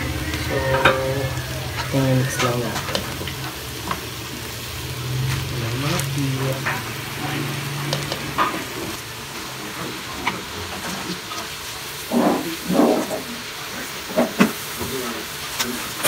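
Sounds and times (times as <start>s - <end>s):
food sizzling in wok: 0.0s - 16.0s
scraping in pan: 0.1s - 4.1s.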